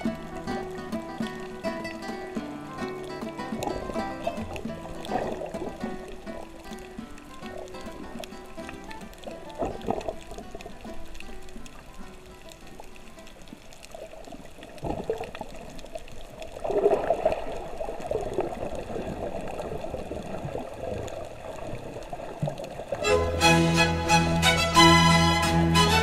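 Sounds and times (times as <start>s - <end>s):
music with sustained notes: 0.0s - 13.4s, 23.0s - 26.0s
underwater sloshing and bubbling: 0.0s - 23.0s.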